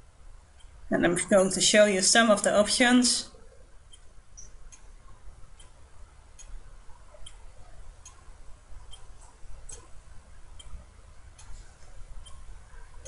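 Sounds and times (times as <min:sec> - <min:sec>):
steady low hum: 0:00.0 - 0:13.0
sharp ticks: 0:00.5 - 0:00.8, 0:03.8 - 0:12.9.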